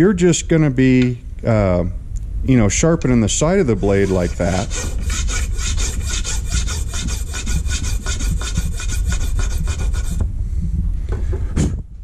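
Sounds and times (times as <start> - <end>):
file rasping on wood: 3.8 - 10.2.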